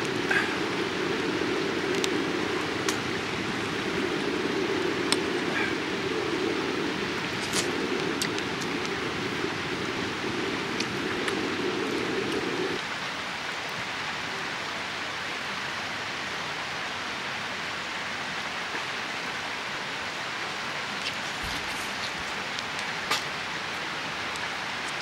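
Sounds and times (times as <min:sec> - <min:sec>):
low rushing noise: 0:00.0 - 0:12.8
rain-like hiss: 0:00.0 - 0:25.0.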